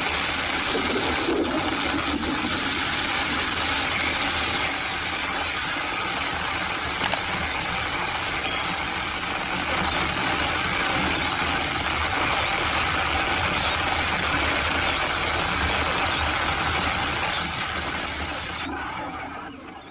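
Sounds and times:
rain: 0.0s - 18.9s
vehicle driving on wet road: 9.3s - 18.8s.

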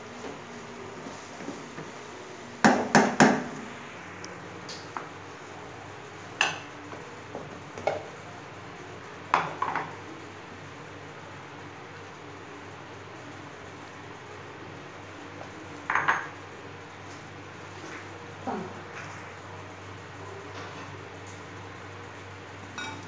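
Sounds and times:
glass bowl clinking on plate: 22.8s - 23.0s.

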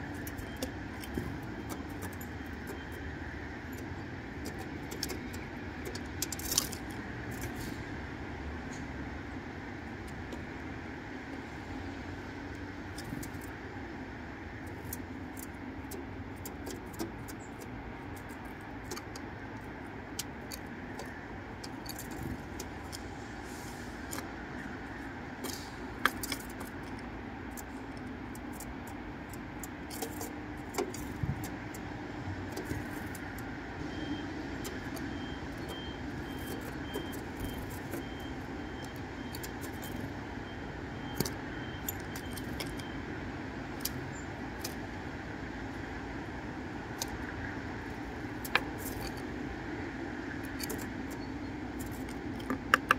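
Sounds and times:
steady background hum: 0.0s - 52.9s.

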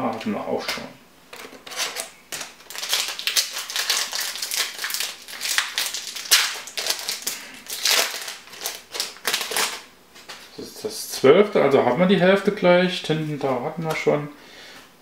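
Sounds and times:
foil wrapper crinkling: 1.3s - 9.9s.

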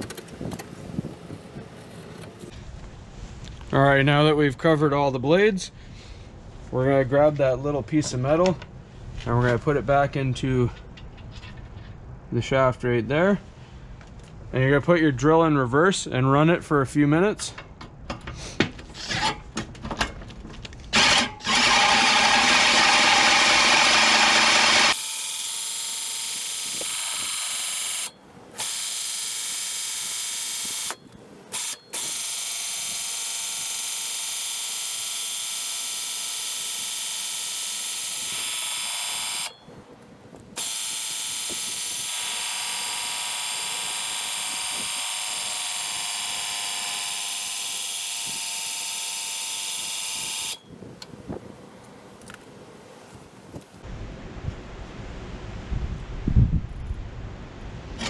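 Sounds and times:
cordless drill running: 20.9s - 39.6s, 40.6s - 50.7s.

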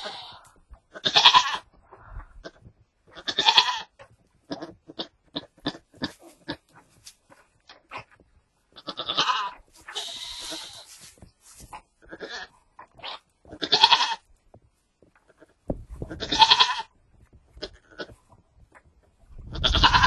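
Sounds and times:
goat bleating: 0.0s - 1.7s, 2.4s - 6.7s, 8.7s - 11.0s, 12.0s - 14.3s, 15.3s - 18.2s, 19.5s - 20.0s
rustling: 3.2s - 14.2s.

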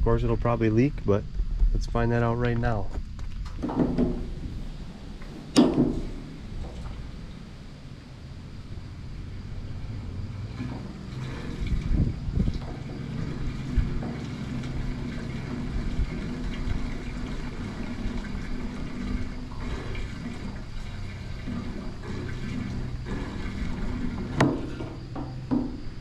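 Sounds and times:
fuel can spout knocking: 3.2s - 4.5s, 5.4s - 7.0s, 10.4s - 26.0s
fuel pouring into tank: 3.4s - 26.0s.

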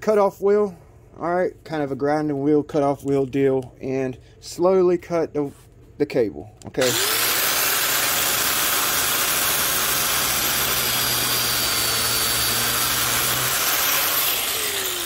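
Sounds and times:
angle grinder cutting steel cable: 6.8s - 15.0s
grinder motor winding down: 6.8s - 15.0s.

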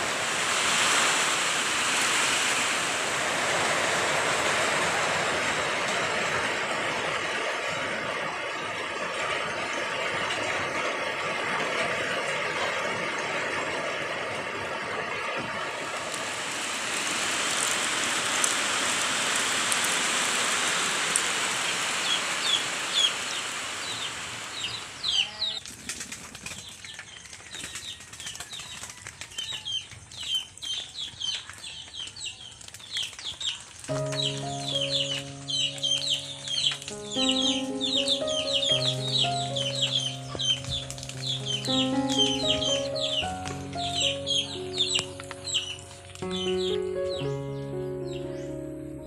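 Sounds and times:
rain on leaves and roof: 0.0s - 47.4s
small birds chirping: 22.0s - 25.6s, 26.6s - 48.6s.

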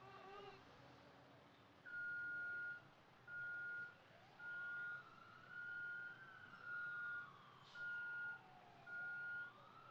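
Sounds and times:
vehicle reversing alarm beeping: 1.9s - 9.6s.

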